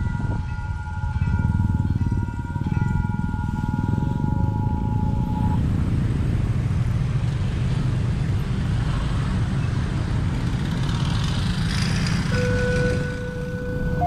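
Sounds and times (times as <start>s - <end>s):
level crossing warning alarm: 0.0s - 5.6s, 12.3s - 14.0s
traffic engines rumbling: 0.0s - 14.0s.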